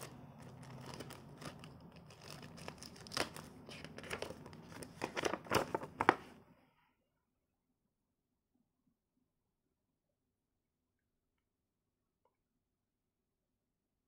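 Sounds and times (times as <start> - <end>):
plastic bag crinkling: 0.0 - 6.3
paper sheet rustling: 0.0 - 6.4.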